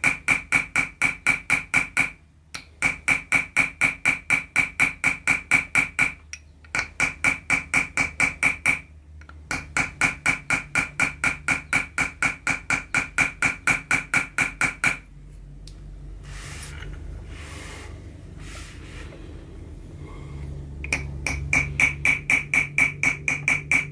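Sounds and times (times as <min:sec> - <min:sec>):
hammer tapping metal tool: 0:00.0 - 0:15.1, 0:20.8 - 0:23.9.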